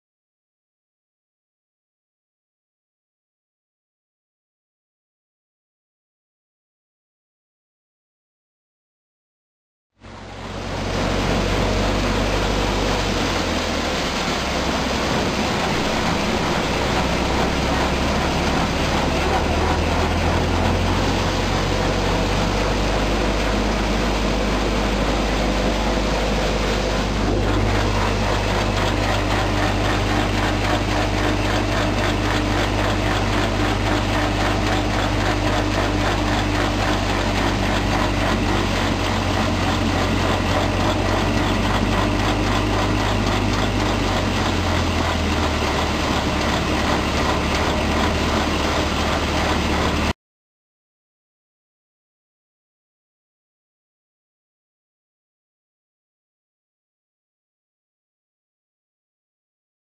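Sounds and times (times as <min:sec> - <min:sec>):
low machine hum: 0:10.0 - 0:50.1
thresher mechanical clatter: 0:10.4 - 0:50.1.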